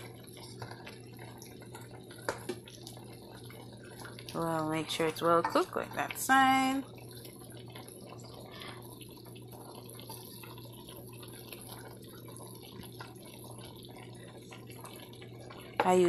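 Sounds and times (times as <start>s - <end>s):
gravy bubbling: 0.0s - 16.0s.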